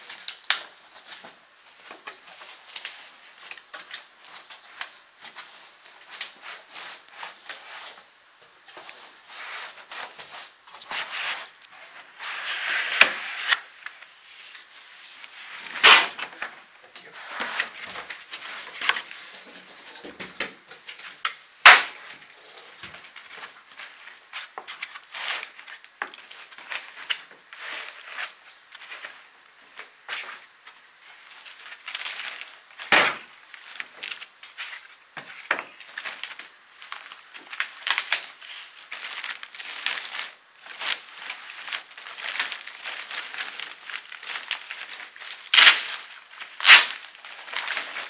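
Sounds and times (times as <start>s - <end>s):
foam and cardboard rustling: 0.0s - 48.0s.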